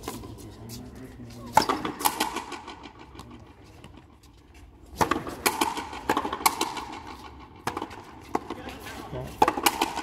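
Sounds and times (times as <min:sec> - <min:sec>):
racket hitting rubber ball: 0:01.6 - 0:02.9, 0:05.0 - 0:10.0.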